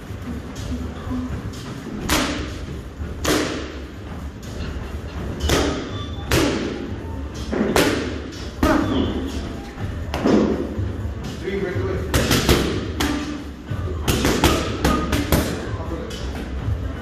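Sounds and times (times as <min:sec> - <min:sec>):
boxing gloves punching mitts: 0:01.9 - 0:03.8, 0:05.4 - 0:06.9, 0:07.5 - 0:09.0, 0:12.1 - 0:15.7.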